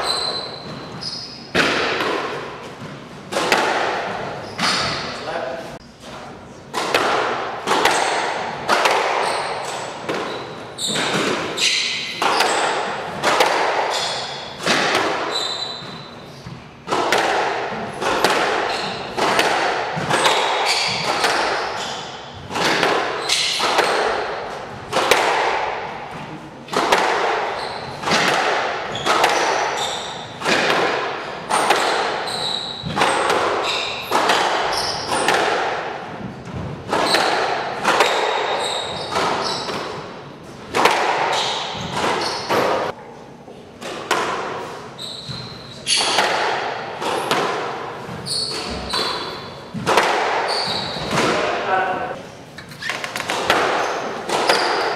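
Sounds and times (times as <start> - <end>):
shoe squeaks on floor: 0.0 - 1.5, 4.4 - 5.2, 9.2 - 12.8, 13.9 - 14.6, 15.2 - 16.6, 18.6 - 19.2, 20.6 - 22.4, 23.2 - 23.6, 27.5 - 28.0, 28.9 - 30.4, 31.5 - 35.3, 38.4 - 39.9, 41.3 - 42.9, 44.9 - 46.2, 48.1 - 49.7, 50.4 - 51.2, 52.6 - 54.9
squash ball cracking off rackets: 1.5 - 5.0, 6.7 - 43.0, 43.8 - 51.6, 52.6 - 54.9.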